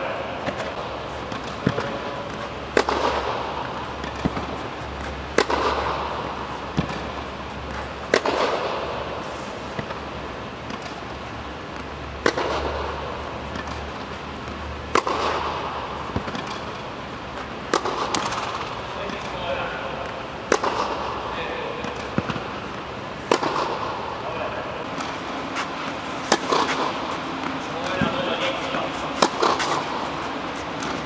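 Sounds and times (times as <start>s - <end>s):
tennis ball bouncing on clay: 0.4s - 8.9s, 13.5s - 16.7s, 17.3s - 19.4s, 20.0s - 21.1s, 21.8s - 24.0s, 24.8s - 31.0s
tennis racket hitting ball: 0.4s - 19.4s, 20.0s - 24.1s, 24.8s - 31.0s.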